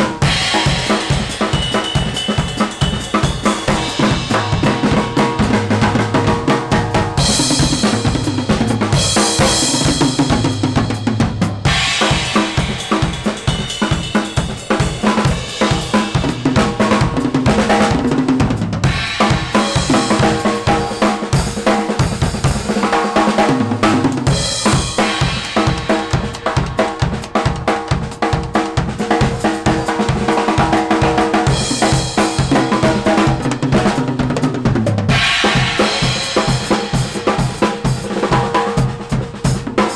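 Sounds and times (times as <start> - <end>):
cymbals crashing: 0.0 - 17.2, 18.9 - 21.7, 24.3 - 27.4, 35.1 - 38.4
snare and tom hits: 0.0 - 18.1, 18.8 - 34.4, 35.0 - 39.9.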